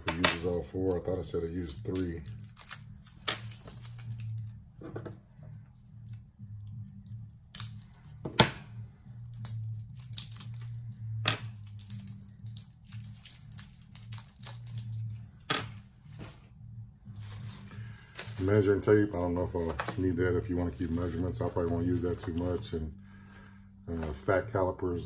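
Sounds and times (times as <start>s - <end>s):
low steady hum: 0.0s - 25.0s
plastic wrap crinkling: 17.1s - 24.4s.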